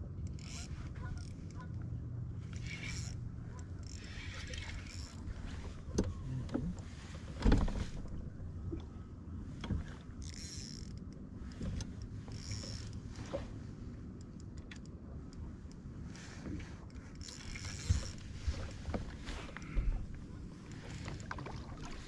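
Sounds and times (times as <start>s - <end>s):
steady low hum: 0.0s - 22.0s
fishing reel cranking: 0.3s - 0.7s, 2.5s - 5.2s, 10.2s - 11.0s, 12.3s - 13.0s, 17.2s - 18.2s.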